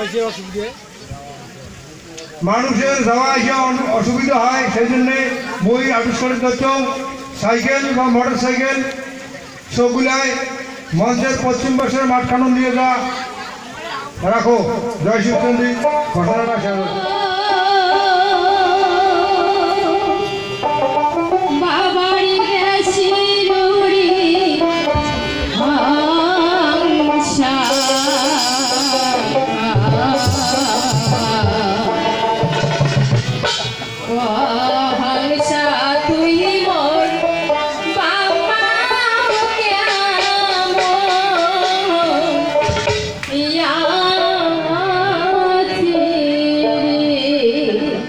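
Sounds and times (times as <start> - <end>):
drums and instruments accompanying: 0.0 - 48.0
woman singing through pa system: 16.8 - 20.6, 21.3 - 32.7, 34.0 - 42.6, 43.3 - 48.0.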